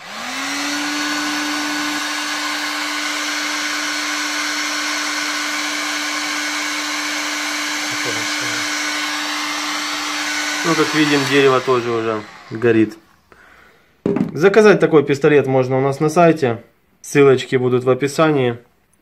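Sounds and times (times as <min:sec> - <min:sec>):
heat gun fan motor humming: 0:00.0 - 0:13.0.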